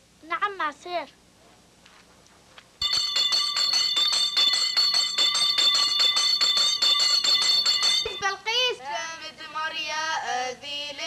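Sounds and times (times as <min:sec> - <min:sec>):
school bell ringing: 0:02.8 - 0:08.5.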